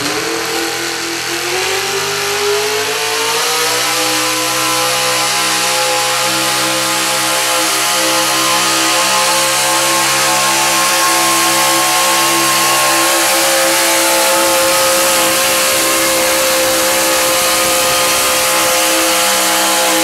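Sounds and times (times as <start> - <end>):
turbocharged truck engine under load: 0.0 - 20.0.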